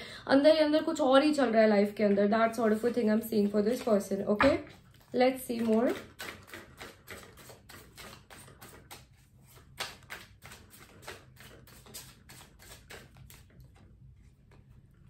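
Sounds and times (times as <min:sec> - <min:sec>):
cards being shuffled: 0:07.2 - 0:13.5.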